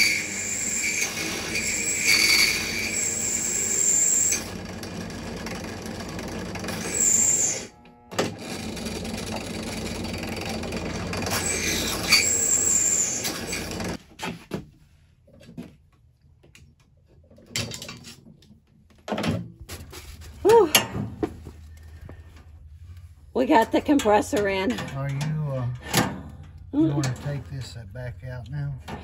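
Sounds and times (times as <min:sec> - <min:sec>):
high squeals of drill bit: 0:00.0 - 0:04.5, 0:06.7 - 0:07.8, 0:11.3 - 0:14.0
drill press cutting metal: 0:00.0 - 0:14.0.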